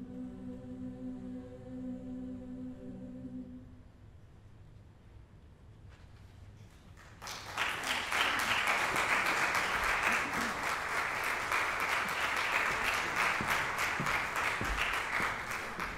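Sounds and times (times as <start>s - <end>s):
audience applause: 7.0s - 15.9s.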